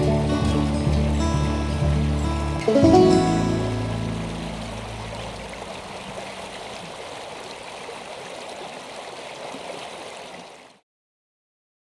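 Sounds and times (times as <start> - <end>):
low music notes: 0.0 - 5.6
river flowing: 0.0 - 10.8.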